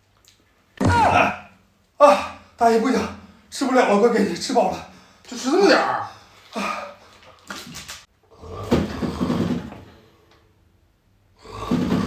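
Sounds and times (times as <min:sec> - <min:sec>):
person snoring loudly: 0:08.3 - 0:09.7, 0:11.4 - 0:12.0.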